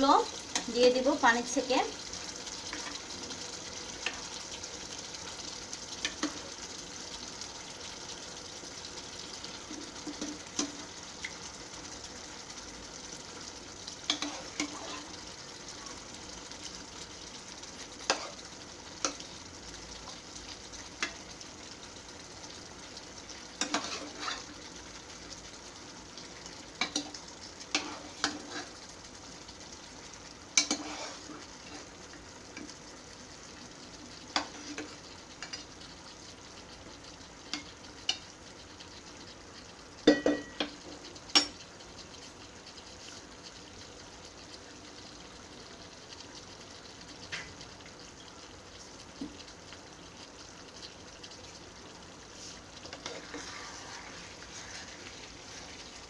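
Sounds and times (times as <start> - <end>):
food sizzling in a frying pan: 0.0 - 56.0.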